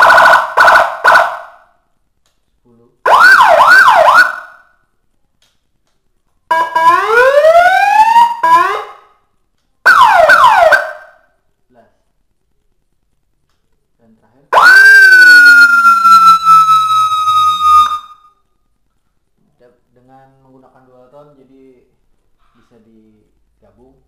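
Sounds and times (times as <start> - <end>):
electronic siren through horn loudspeaker: 0.0 - 1.6, 3.1 - 4.6, 6.5 - 9.1, 9.9 - 11.2, 14.6 - 18.3.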